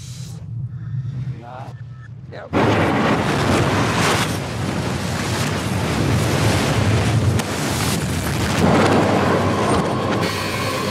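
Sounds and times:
explosion and fire roar: 2.5s - 10.9s.

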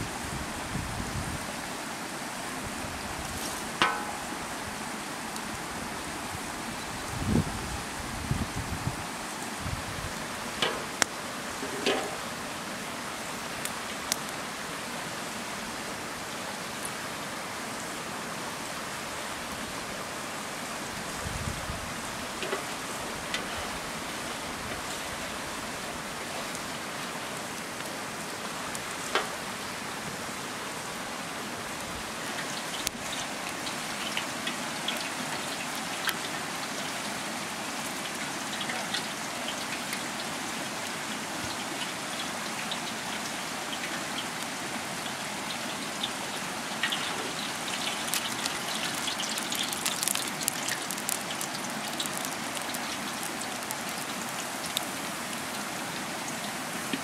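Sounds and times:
wood fire crackling: 2.4s - 15.6s, 19.0s - 57.0s
hot oil hissing and popping: 3.0s - 5.5s, 9.1s - 14.8s, 20.4s - 57.0s.

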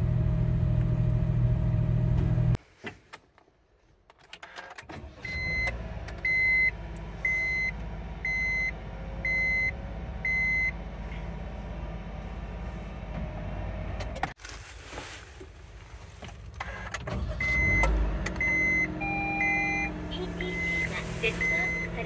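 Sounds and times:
car engine starting and idling: 0.0s - 2.6s, 4.0s - 14.6s, 15.3s - 22.0s
dashboard warning chime beeping: 5.2s - 10.8s, 16.6s - 22.0s.

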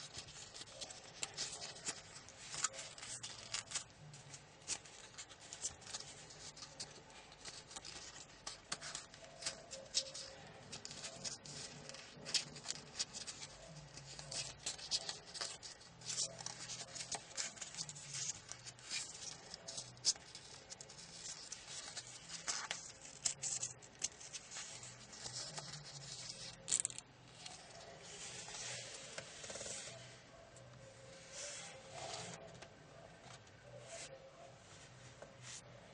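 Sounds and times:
paper crinkling and crackling: 0.0s - 35.9s.

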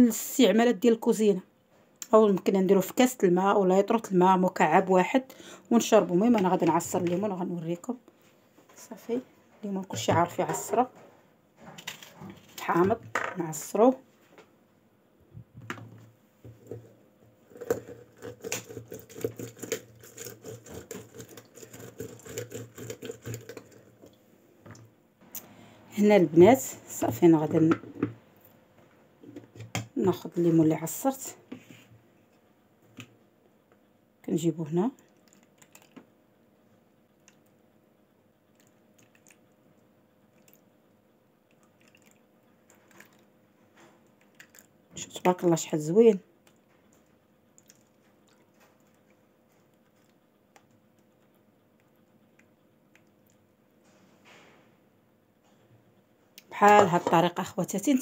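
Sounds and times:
low steady hum: 0.0s - 58.0s
juice trickling into tray: 41.5s - 43.3s.

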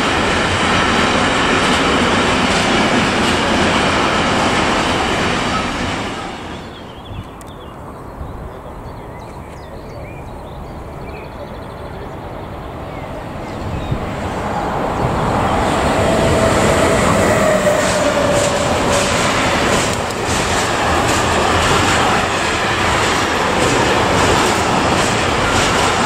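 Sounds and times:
train wheels clattering over rails: 0.0s - 6.8s, 13.4s - 26.0s
electric locomotive rumble: 0.0s - 26.0s.

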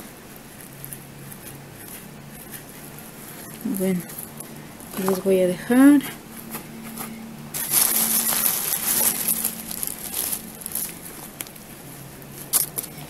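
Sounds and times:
potting soil rustling: 0.3s - 13.0s
plastic bag crinkling: 6.2s - 12.9s.

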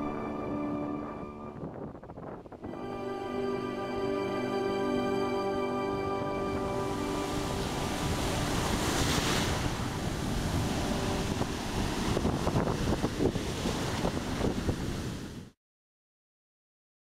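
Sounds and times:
wind buffeting microphone: 0.0s - 2.9s, 7.3s - 15.5s
surf breaking on beach: 6.6s - 15.6s
water splashes: 6.7s - 15.3s.

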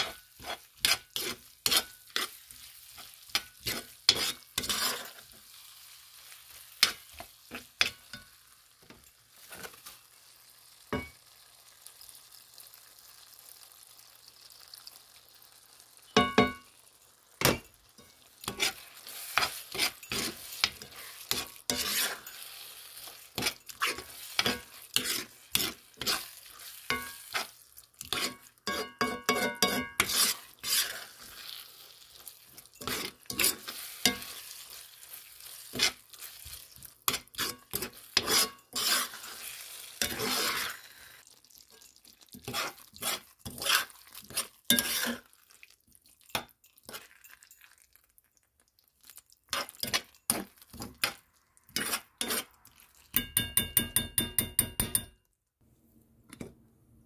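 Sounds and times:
metal spoon scraping skillet: 0.0s - 10.1s, 17.4s - 41.2s, 41.8s - 45.4s, 49.5s - 55.2s
corn sizzling: 0.0s - 53.4s
spoon ringing against pan: 16.2s - 16.7s, 53.1s - 55.2s.

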